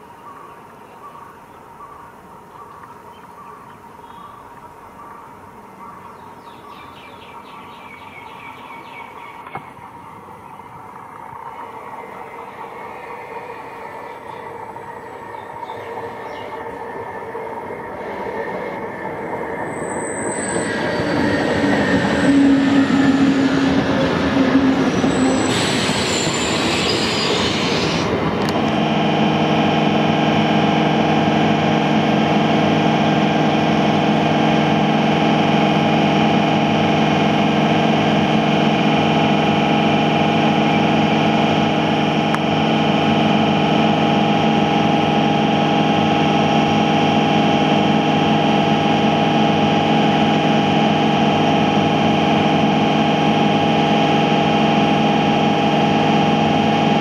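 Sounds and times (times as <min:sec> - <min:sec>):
electrical hum of train: 0:00.0 - 0:57.0
train rail noise: 0:09.0 - 0:57.0
high wheel squeals: 0:19.6 - 0:28.2.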